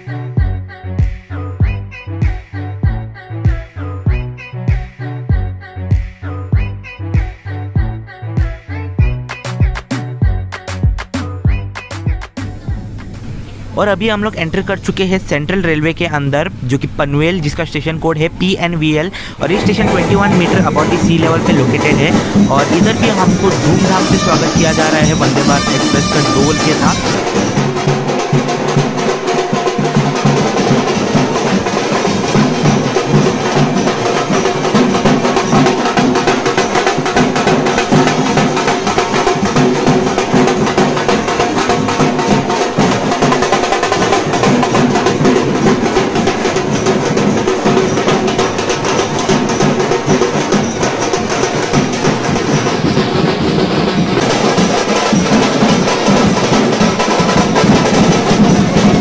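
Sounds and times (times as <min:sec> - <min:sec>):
fast festive drumming: 0:17.2 - 0:59.0.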